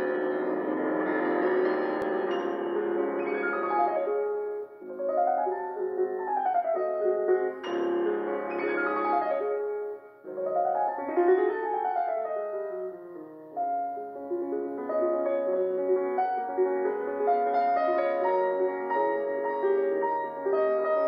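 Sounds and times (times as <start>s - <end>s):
piano music: 0.0s - 21.0s.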